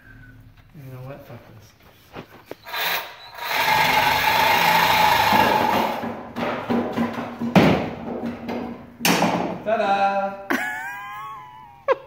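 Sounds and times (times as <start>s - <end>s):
reciprocating saw cutting metal pipe: 2.6s - 6.1s.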